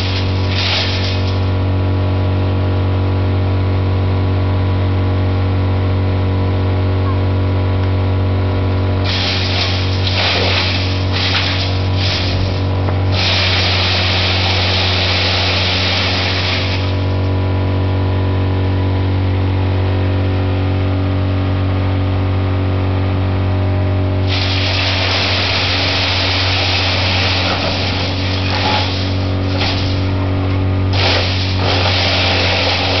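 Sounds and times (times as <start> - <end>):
wood chipper humming: 0.0 - 33.0.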